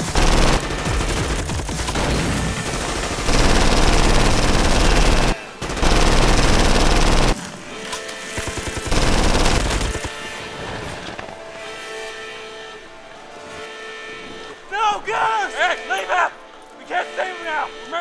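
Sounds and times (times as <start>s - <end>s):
automatic gunfire bursts: 0.0s - 7.4s, 8.3s - 10.1s.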